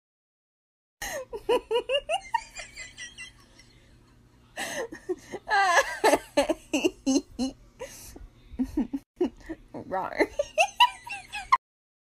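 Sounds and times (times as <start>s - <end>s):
high-pitched giggling laughter: 1.1s - 3.7s, 4.9s - 7.6s.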